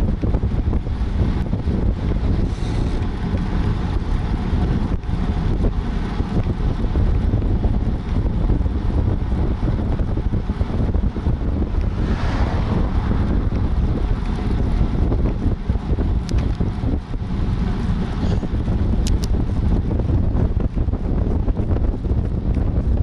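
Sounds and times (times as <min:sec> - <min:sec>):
wind buffeting microphone: 0:00.0 - 0:23.0
car passing: 0:11.2 - 0:15.4.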